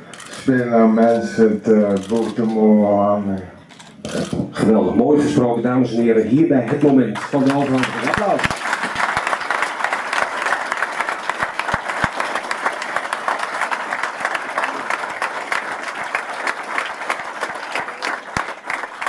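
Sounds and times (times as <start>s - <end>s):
audience applauding: 6.7s - 19.0s.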